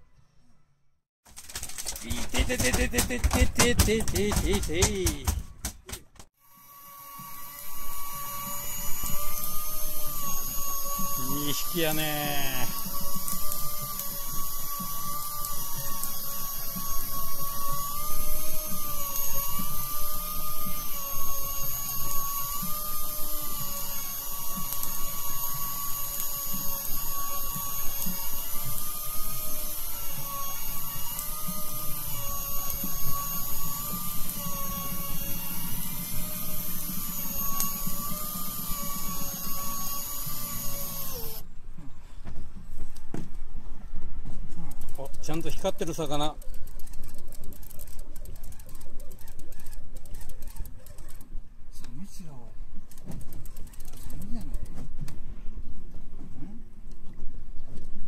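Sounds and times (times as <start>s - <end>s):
electric fishing reel motor whining: 6.4s - 41.5s, 44.8s - 51.3s, 52.9s - 54.6s.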